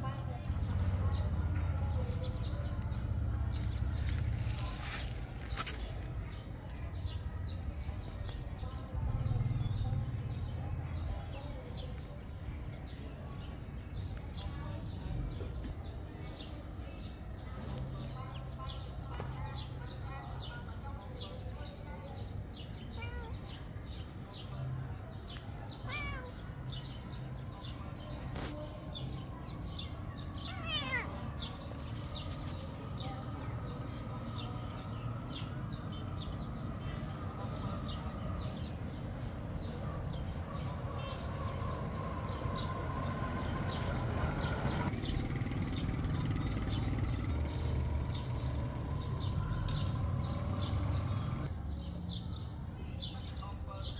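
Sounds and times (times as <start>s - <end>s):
birds chirping: 0.0s - 53.9s
outdoor background noise: 0.0s - 53.9s
cat meowing: 25.8s - 26.4s, 30.4s - 31.3s.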